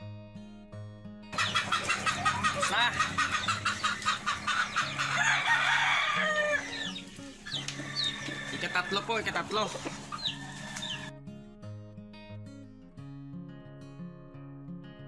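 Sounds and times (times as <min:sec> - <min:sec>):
chickens clucking: 0:01.3 - 0:11.1
roosters crowing: 0:01.4 - 0:11.1.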